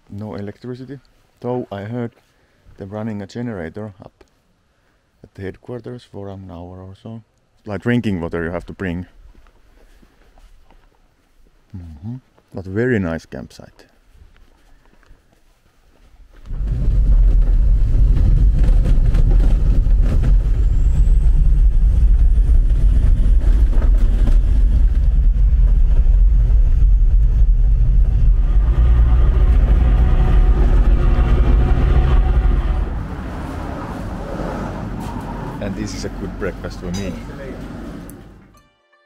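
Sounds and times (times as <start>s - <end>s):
vehicle engine and road rumble: 16.3s - 38.5s.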